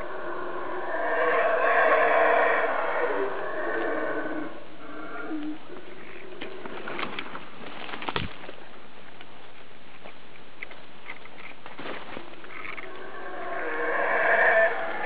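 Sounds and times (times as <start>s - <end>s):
howler monkey deep roaring calls: 0.0s - 6.8s, 12.8s - 15.0s
forest background hiss: 0.0s - 15.0s.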